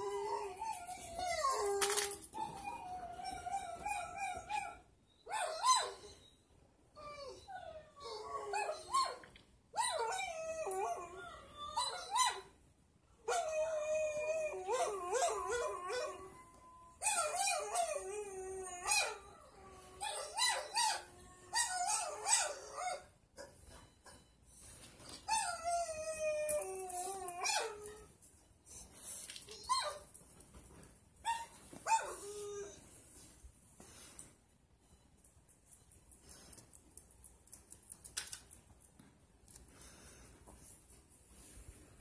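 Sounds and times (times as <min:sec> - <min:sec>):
dogs howling and whining: 0:00.0 - 0:06.3, 0:07.0 - 0:12.5, 0:13.2 - 0:23.1, 0:25.3 - 0:28.1.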